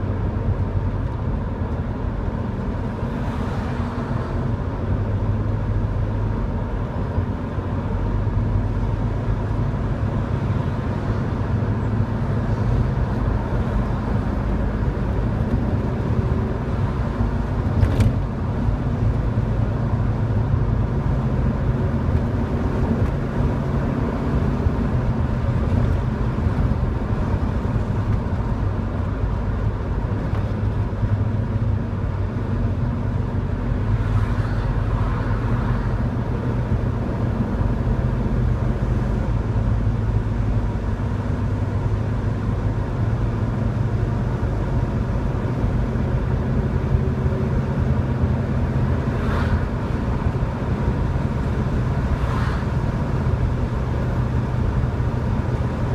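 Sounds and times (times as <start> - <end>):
car engine drone: 0.0 - 55.9.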